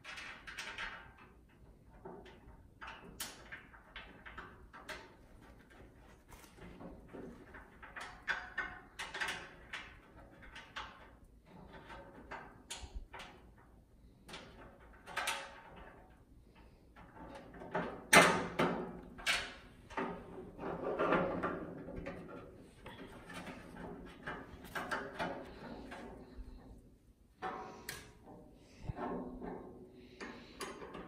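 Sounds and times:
metal clicks and knocks: 0.0s - 31.0s.

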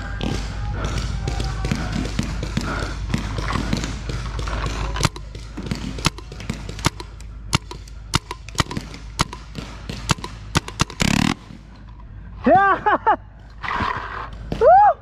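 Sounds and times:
paintball markers firing: 0.0s - 11.9s.

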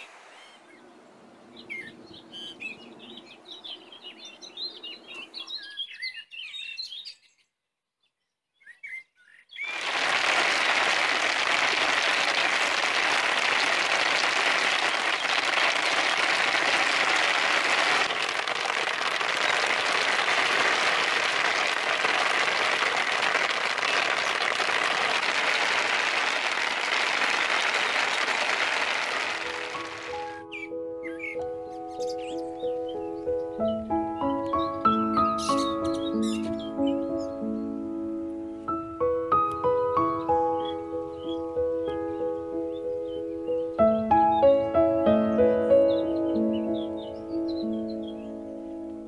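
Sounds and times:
small birds chirping: 0.0s - 9.8s, 30.1s - 37.9s, 40.0s - 44.7s, 45.3s - 48.5s
steady rain: 9.7s - 30.3s.

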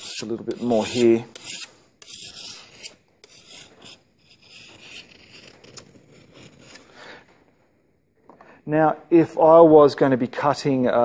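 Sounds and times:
file rasping on a blade: 0.0s - 6.9s.

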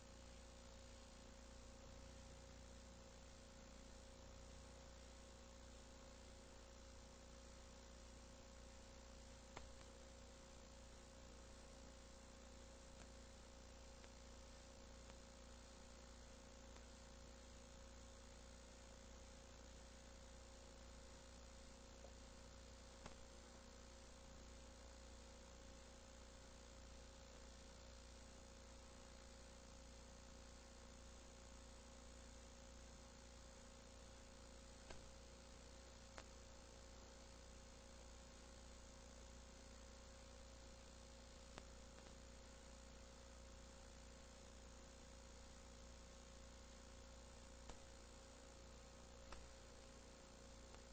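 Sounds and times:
faint electrical hum and hiss: 0.0s - 50.9s
faint clicks: 36.1s - 36.4s, 49.3s - 49.5s.

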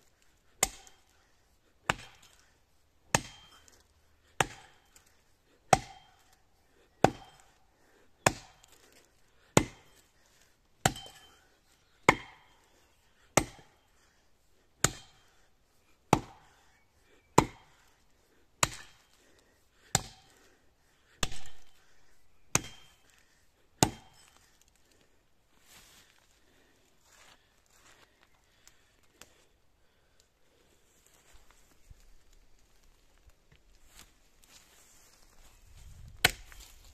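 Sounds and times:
axe chopping wood: 0.5s - 1.2s, 1.8s - 2.5s, 3.1s - 5.1s, 5.7s - 6.4s, 7.0s - 7.6s, 8.2s - 10.0s, 10.8s - 12.6s, 13.4s - 13.8s, 14.8s - 15.4s, 16.1s - 16.6s, 17.3s - 17.8s, 18.6s - 19.2s, 19.8s - 20.4s, 21.1s - 21.9s, 22.5s - 23.2s, 23.8s - 24.5s, 36.2s - 36.6s.

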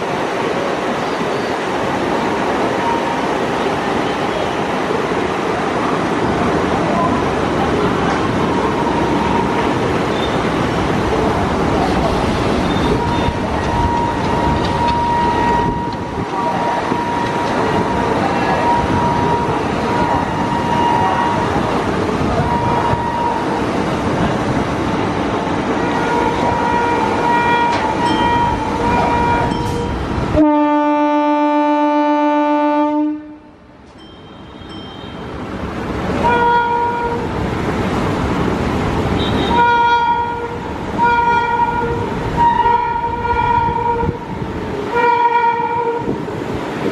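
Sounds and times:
electric train running: 7.0s - 24.4s
train horn blasts: 25.8s - 33.5s, 36.2s - 37.3s, 39.2s - 44.3s, 44.9s - 46.2s.

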